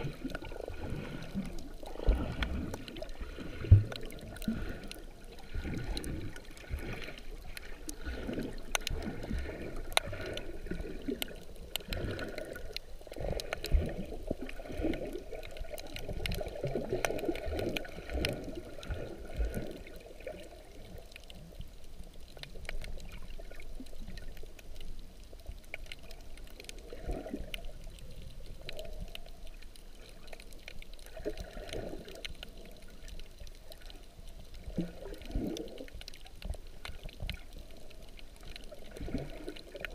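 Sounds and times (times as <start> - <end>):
muffled underwater water sloshing: 0.0 - 39.9
faint clicks: 8.6 - 9.1, 9.8 - 39.9.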